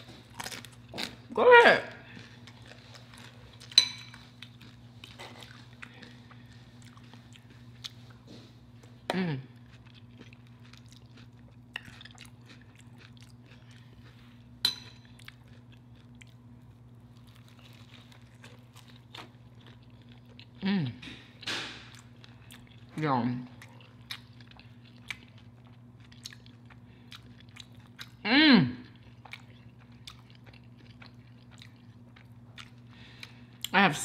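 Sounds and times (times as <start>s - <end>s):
chewing and crunching: 0.0s - 1.3s, 2.0s - 28.2s, 28.8s - 33.8s
steady low hum: 0.0s - 34.0s
person humming mmm: 9.1s - 9.5s, 28.2s - 28.9s.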